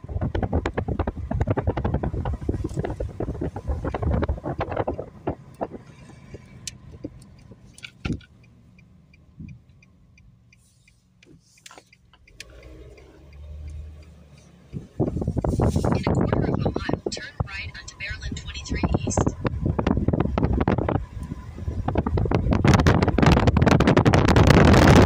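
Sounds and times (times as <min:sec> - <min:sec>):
wind buffeting microphone: 0:00.0 - 0:08.3, 0:14.7 - 0:25.0
low rumble: 0:00.0 - 0:08.4, 0:12.8 - 0:25.0
car road noise: 0:00.0 - 0:25.0.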